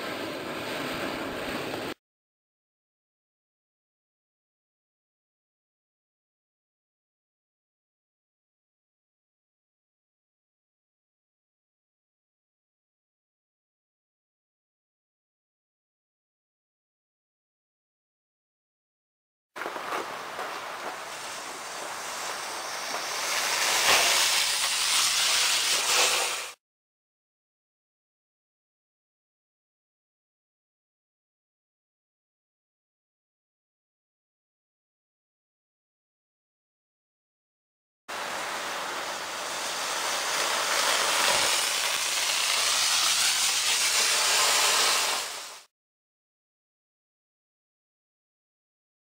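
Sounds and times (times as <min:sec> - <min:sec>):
rocket motor hissing: 0:21.0 - 0:26.6, 0:38.1 - 0:45.7.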